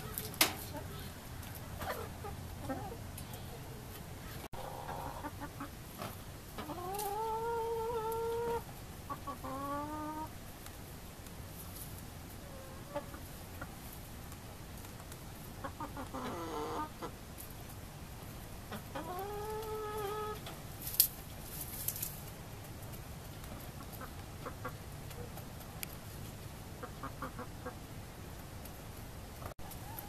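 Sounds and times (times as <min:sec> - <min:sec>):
chickens clucking: 0:00.0 - 0:10.8, 0:11.6 - 0:28.8, 0:29.4 - 0:30.0
chickens long drawn-out calls: 0:04.6 - 0:10.4, 0:12.4 - 0:13.4, 0:15.6 - 0:17.2, 0:18.7 - 0:20.5, 0:26.8 - 0:27.8, 0:29.4 - 0:30.0.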